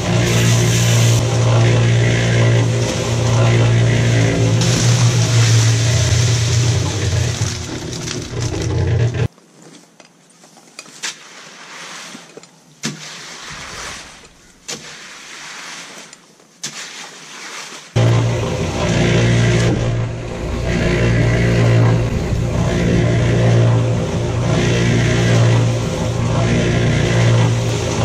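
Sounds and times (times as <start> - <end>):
electric cement mixer humming: 0.0 - 9.3, 18.0 - 28.0.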